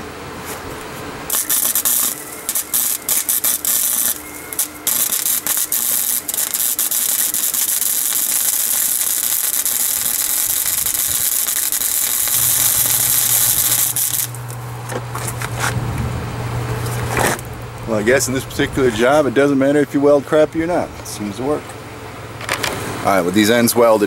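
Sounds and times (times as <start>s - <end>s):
low hum: 0.9s - 22.4s
welder arc crackling: 1.3s - 15.6s.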